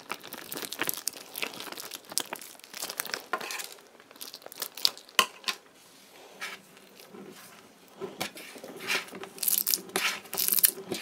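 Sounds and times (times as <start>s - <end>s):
sticky crackles and clicks: 0.0s - 5.4s, 7.9s - 11.0s.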